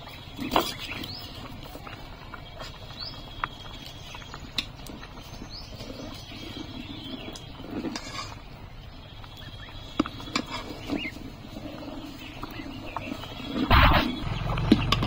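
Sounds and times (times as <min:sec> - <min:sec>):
rice boiling in pot: 0:00.0 - 0:15.0.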